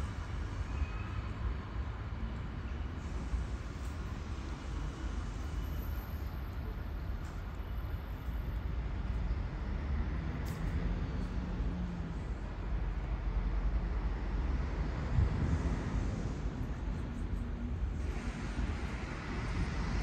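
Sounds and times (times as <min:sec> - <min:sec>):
train rumbling: 0:00.0 - 0:20.0.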